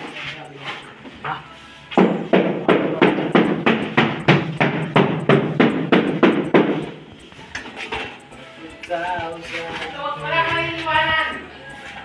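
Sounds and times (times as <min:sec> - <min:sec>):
rapid hammering: 0:02.0 - 0:07.0.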